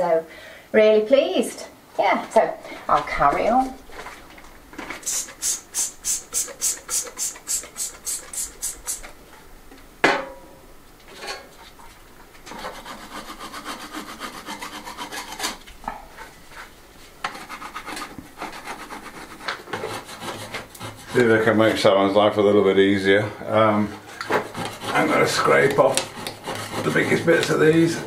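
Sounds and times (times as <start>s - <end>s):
brush scrubbing wooden beam: 4.9s - 9.2s, 12.5s - 15.6s, 16.2s - 21.9s, 23.8s - 28.0s.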